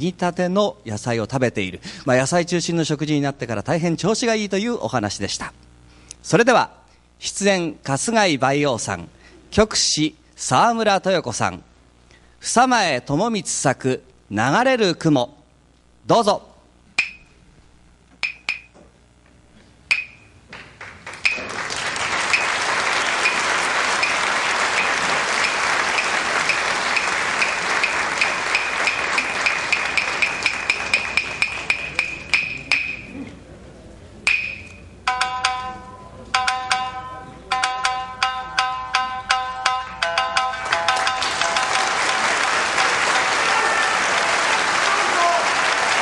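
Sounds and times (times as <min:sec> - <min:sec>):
wooden clappers struck: 0:17.0 - 0:17.3, 0:18.2 - 0:18.8, 0:19.9 - 0:21.6, 0:22.2 - 0:33.1, 0:34.2 - 0:43.3
audience applause: 0:20.8 - 0:31.7, 0:40.6 - 0:46.0
shamisen plucked notes: 0:22.3 - 0:33.2, 0:34.2 - 0:43.4.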